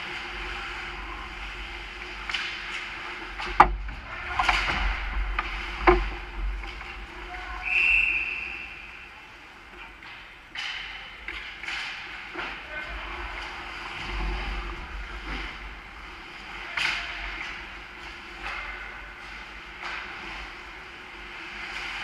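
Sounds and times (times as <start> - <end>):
short high whistle: 7.6 - 9.0.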